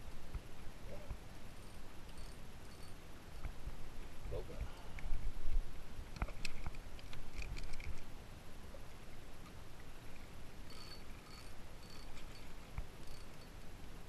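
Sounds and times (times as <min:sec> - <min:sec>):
wind rumble on microphone: 0:03.4 - 0:08.8
short high squeaks: 0:10.7 - 0:13.5.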